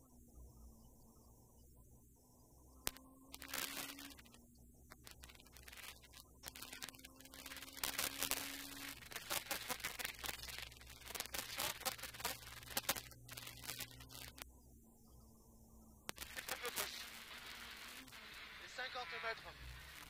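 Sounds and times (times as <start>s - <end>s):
crackling and clicking: 0.0s - 14.7s, 15.9s - 20.0s.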